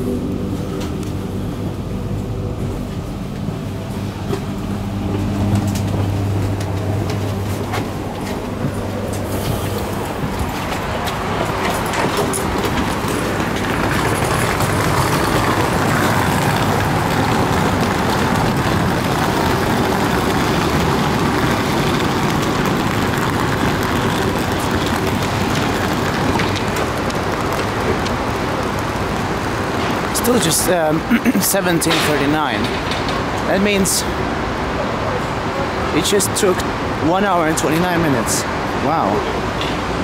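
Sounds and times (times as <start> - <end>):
standing train rumble and hiss: 0.0 - 40.0
faint footsteps: 4.2 - 20.6.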